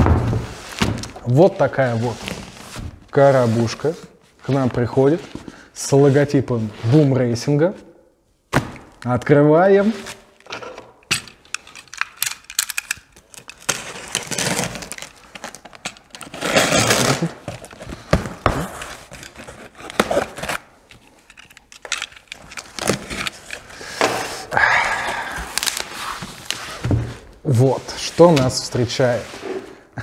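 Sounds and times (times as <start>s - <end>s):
cardboard scraping: 0.0s - 7.2s, 25.5s - 30.0s
tape ripping: 11.8s - 23.7s.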